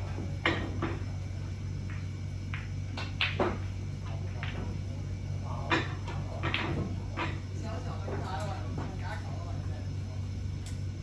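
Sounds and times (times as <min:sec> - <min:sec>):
snooker balls clicking: 0:00.1 - 0:05.0, 0:05.6 - 0:09.3.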